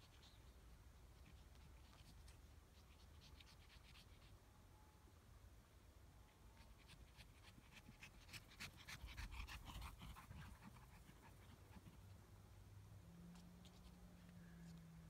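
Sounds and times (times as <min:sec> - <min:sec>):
dog panting quickly: 0:06.6 - 0:12.2.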